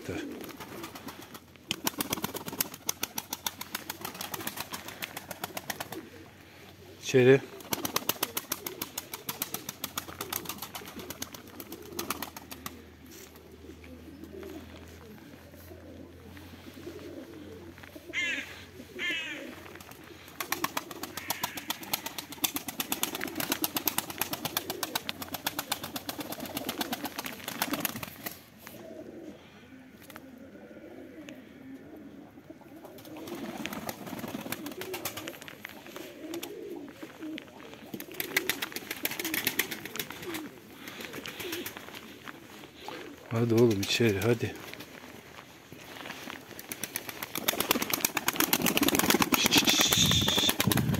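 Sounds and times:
wings flapping: 0:00.0 - 0:06.3, 0:07.1 - 0:13.6, 0:19.0 - 0:28.5, 0:32.8 - 0:44.9, 0:46.1 - 0:50.9
pigeons cooing: 0:00.0 - 0:50.9.

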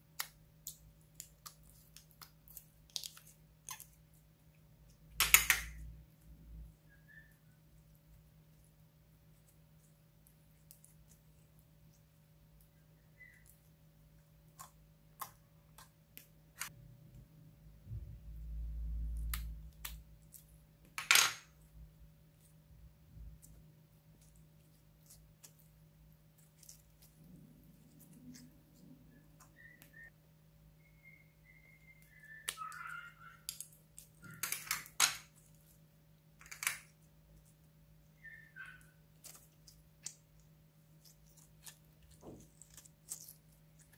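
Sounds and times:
slime squelching: 0:00.0 - 0:06.3, 0:21.6 - 0:30.1, 0:31.4 - 0:43.9.

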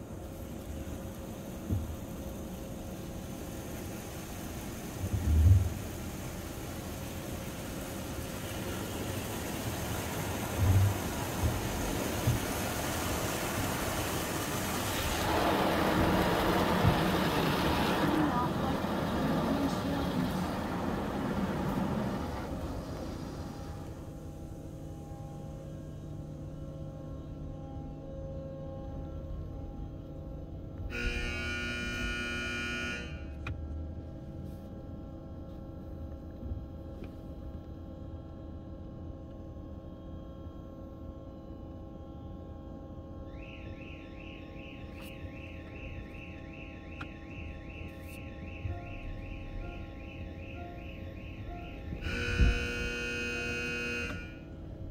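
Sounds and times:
water spraying on car: 0:00.0 - 0:24.3
car wash equipment humming: 0:00.0 - 0:54.9
high buzzing tone: 0:30.9 - 0:33.4, 0:48.7 - 0:54.9.

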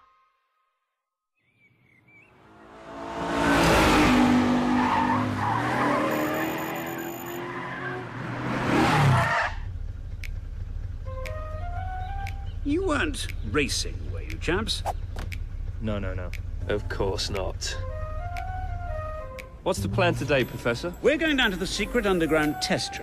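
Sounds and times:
tyres skidding: 0:02.3 - 0:23.0
cartoon car engines revving: 0:02.4 - 0:17.6
low engine rumble: 0:09.6 - 0:22.8.

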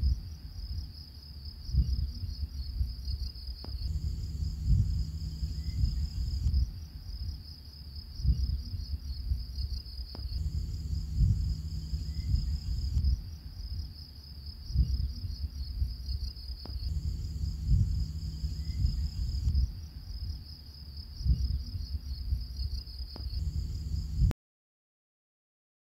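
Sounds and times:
low rumble: 0:03.6 - 0:06.9, 0:10.2 - 0:13.7, 0:16.7 - 0:20.0, 0:23.2 - 0:24.4
high chirring: 0:03.9 - 0:06.5, 0:10.4 - 0:13.0, 0:16.9 - 0:19.6.

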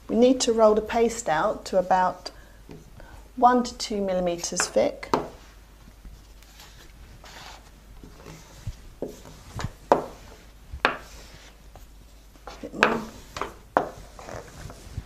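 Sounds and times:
rolling pin rubbing on paste: 0:06.6 - 0:11.9, 0:12.5 - 0:15.0.

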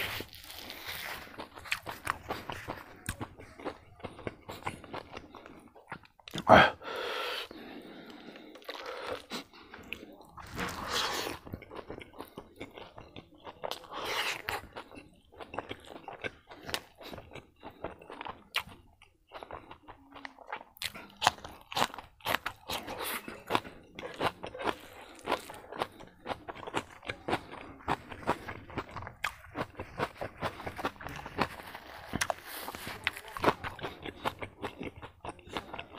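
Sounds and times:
wet chewing clicks: 0:00.0 - 0:35.9
slurp: 0:06.3 - 0:11.6.

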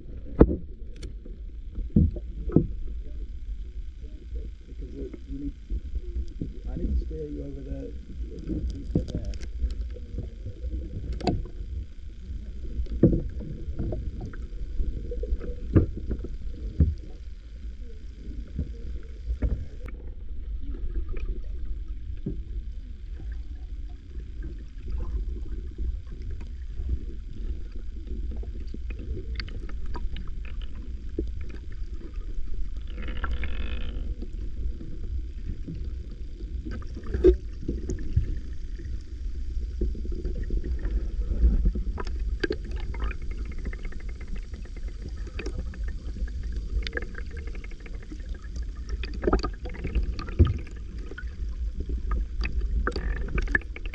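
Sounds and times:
water sloshing and gurgling: 0:00.0 - 0:53.9.

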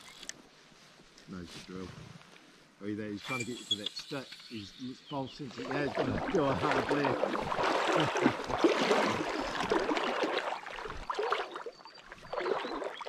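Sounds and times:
water splashing: 0:03.3 - 0:13.0.

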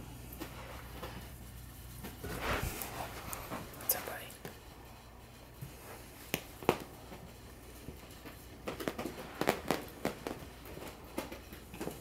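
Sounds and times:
puppies' clicks and taps: 0:06.3 - 0:12.0.

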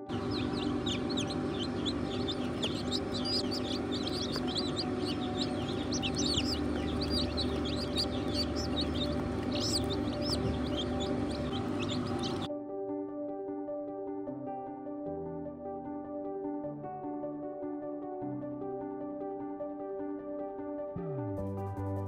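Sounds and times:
chicks peeping: 0:00.0 - 0:12.5
steady hum: 0:00.0 - 0:12.5.

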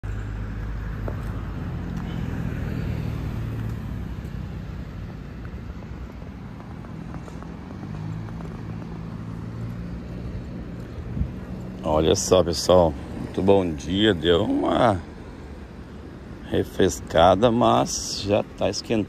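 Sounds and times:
car driving past: 0:00.0 - 0:13.4.

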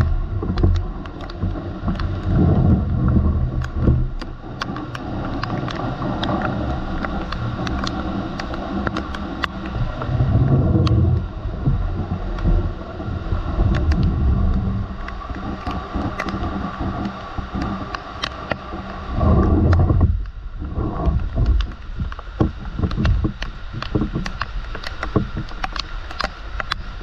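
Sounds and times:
rain on metal and tile roofs: 0:00.0 - 0:27.0
raindrops ticking on camera: 0:00.0 - 0:27.0
wind gusts on microphone: 0:05.2 - 0:24.3.

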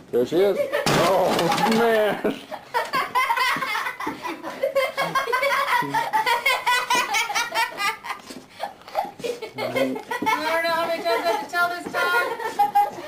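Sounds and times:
person laughing heartily: 0:02.0 - 0:10.5, 0:11.1 - 0:13.0.

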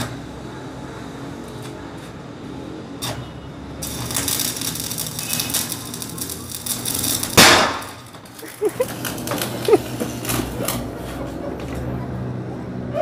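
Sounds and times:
sledgehammer striking paving: 0:07.3 - 0:08.2.

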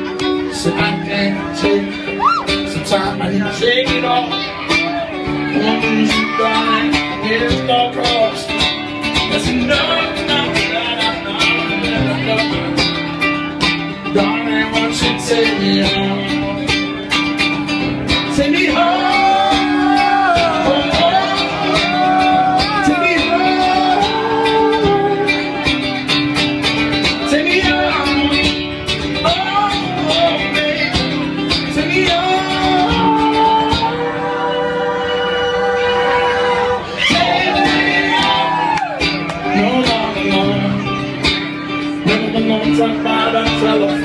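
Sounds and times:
man singing: 0:00.0 - 0:44.0
nylon-string acoustic guitar: 0:00.0 - 0:44.0.

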